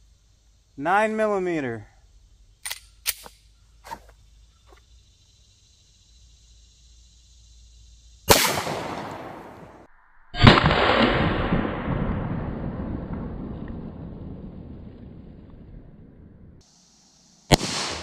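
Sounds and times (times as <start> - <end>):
pistol shots: 8.3 - 9.7, 17.5 - 18.0.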